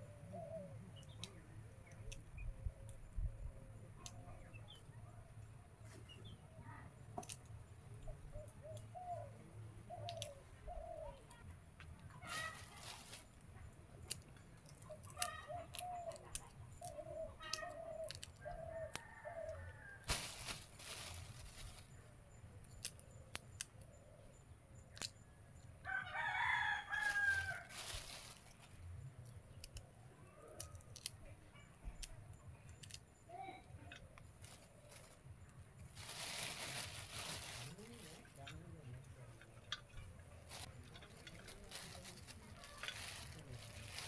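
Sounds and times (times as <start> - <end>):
seed pods snapping: 7.2 - 8.9, 10.0 - 10.4, 11.8 - 21.9, 22.6 - 23.9, 24.9 - 25.2, 26.6 - 29.8, 30.5 - 31.2, 31.9 - 33.0, 40.4 - 44.0
plastic bag rustling: 12.2 - 13.4, 20.0 - 22.0, 27.0 - 28.8, 35.9 - 38.4, 40.4 - 44.0
rooster crowing: 25.9 - 27.7.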